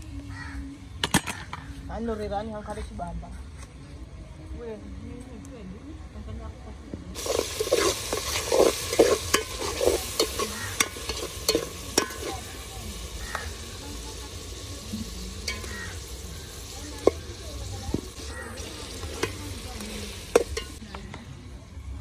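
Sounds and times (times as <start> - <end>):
food sizzling in a pot: 7.2 - 21.4.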